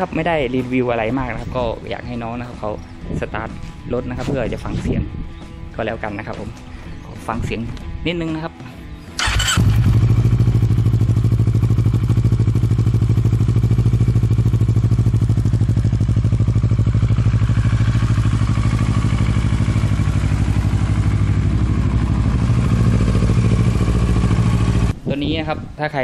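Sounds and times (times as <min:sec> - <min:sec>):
motorcycle engine starting and idling: 0:09.1 - 0:24.9.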